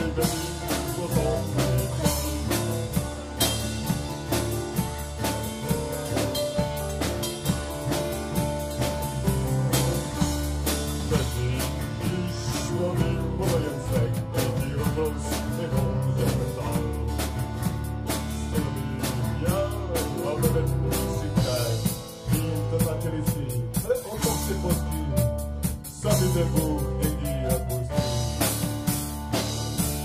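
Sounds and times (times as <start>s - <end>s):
person singing: 0.0s - 4.6s, 9.7s - 17.5s, 18.1s - 28.4s
drum kit: 0.0s - 30.0s.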